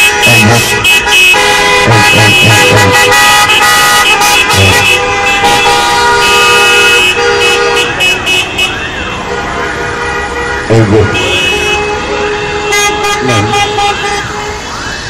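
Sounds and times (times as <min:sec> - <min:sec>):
car horns honking: 0:00.0 - 0:14.8.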